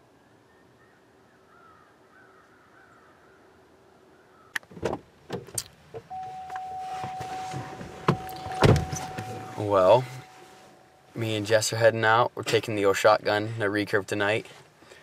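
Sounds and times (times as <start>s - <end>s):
faint woodland background: 0.0s - 15.0s
clicks knocks and rustling in car: 4.6s - 10.3s
steady high tone: 6.1s - 11.5s.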